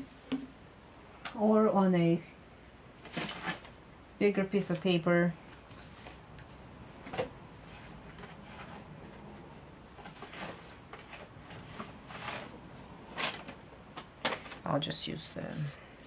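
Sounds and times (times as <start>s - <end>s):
soft rustling of craft materials: 4.7s - 13.6s, 14.3s - 16.0s.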